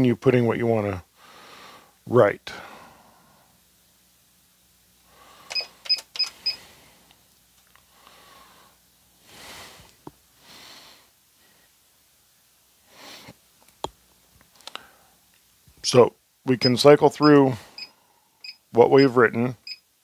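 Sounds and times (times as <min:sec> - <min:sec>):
soft breaths: 0:01.1 - 0:03.7, 0:05.0 - 0:11.9, 0:12.8 - 0:13.4, 0:14.6 - 0:15.3, 0:17.5 - 0:18.6
short electronic beeps: 0:17.8 - 0:19.8.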